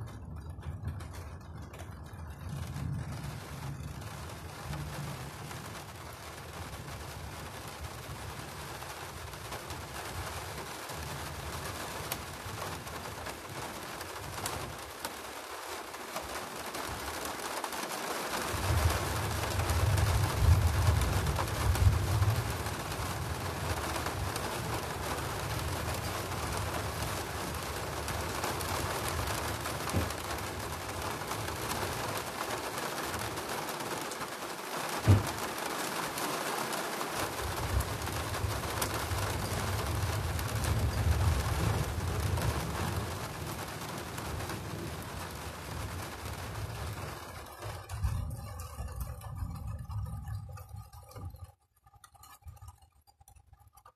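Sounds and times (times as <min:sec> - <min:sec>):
thunder rumbling: 0:00.0 - 0:14.9, 0:18.4 - 0:32.4, 0:37.3 - 0:51.4
steady rain: 0:00.0 - 0:53.9.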